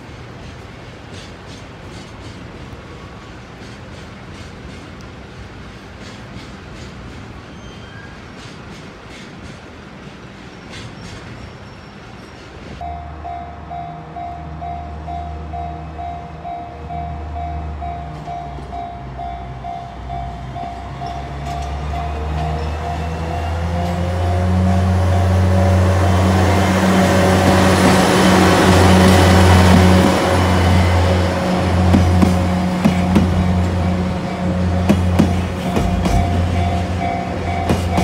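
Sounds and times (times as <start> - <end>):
diesel locomotive engine drone: 11.8 - 38.0
freight wagons rolling on rails: 20.1 - 38.0.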